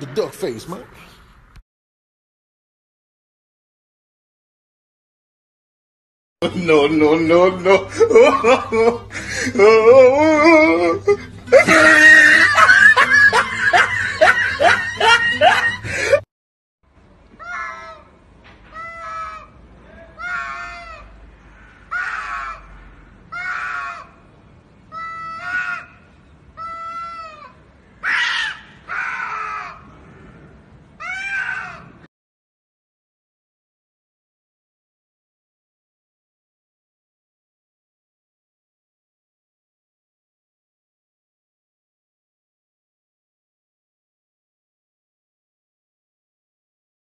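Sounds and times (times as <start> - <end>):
wavering voice: 6.4 - 12.0
yelping laughter: 7.6 - 16.2
person screaming: 7.7 - 12.6
cats yowling and screeching: 11.5 - 15.6, 17.4 - 18.1, 18.7 - 19.5, 20.1 - 21.1, 21.9 - 22.7, 23.3 - 24.2, 24.9 - 26.0, 26.6 - 29.9, 31.0 - 32.0.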